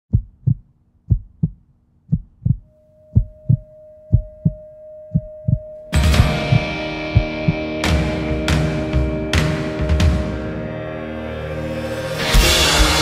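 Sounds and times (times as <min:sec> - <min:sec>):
heartbeat thumps: 0:00.1 - 0:07.7
held tone: 0:02.5 - 0:07.6
loud music: 0:06.0 - 0:13.0.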